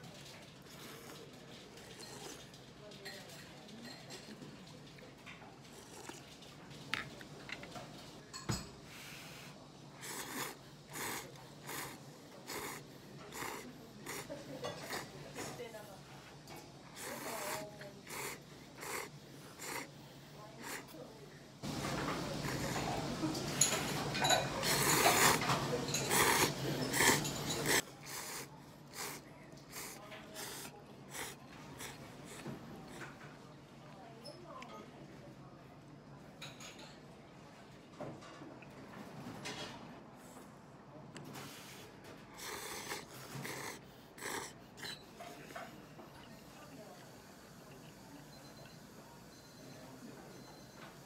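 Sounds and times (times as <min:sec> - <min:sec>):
slurping noodles: 0:05.6 - 0:06.4, 0:09.2 - 0:15.6, 0:16.5 - 0:21.0, 0:21.7 - 0:33.1, 0:41.3 - 0:46.6.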